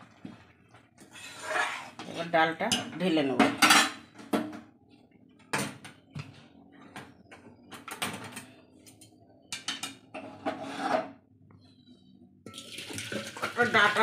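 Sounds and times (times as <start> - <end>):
metal cookware scraping and knocking: 1.2 - 4.1, 9.5 - 11.2.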